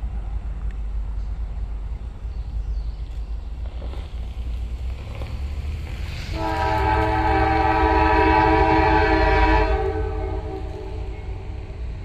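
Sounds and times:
low train rumble: 0:00.0 - 0:12.0
locomotive air horn chord: 0:06.2 - 0:11.8.

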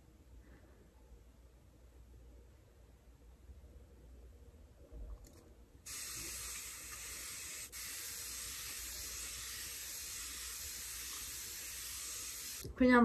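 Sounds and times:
aerosol spray hiss: 0:05.9 - 0:12.7.

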